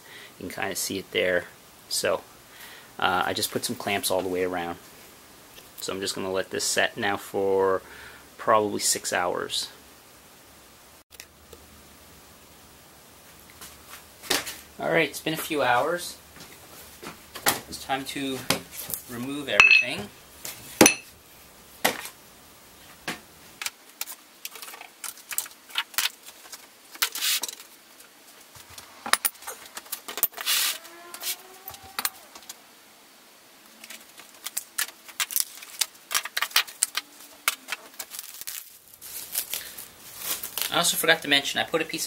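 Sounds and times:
weight plates clanking: 19.6s - 20.0s
metallic ring: 19.6s - 20.1s, 20.8s - 21.1s.

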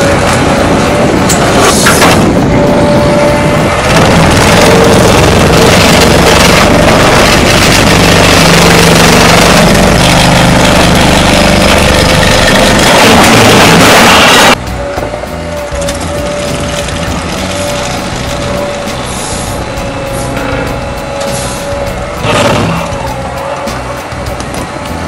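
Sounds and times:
excavator engine running: 0.0s - 25.0s
hydraulic ripper hammering concrete: 3.8s - 19.6s, 20.3s - 23.0s.

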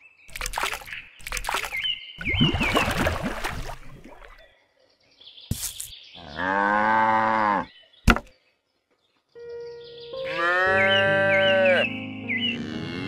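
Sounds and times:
cow mooing: 10.2s - 13.0s.

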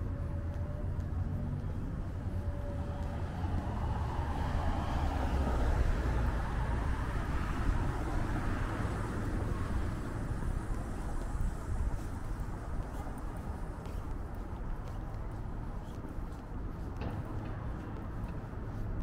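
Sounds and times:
street traffic rumble: 0.0s - 19.0s
car passing: 0.6s - 12.8s.

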